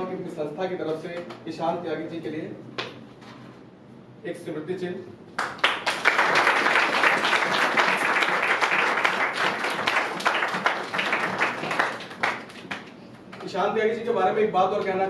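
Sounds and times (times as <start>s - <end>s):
audience applause: 5.4s - 12.9s.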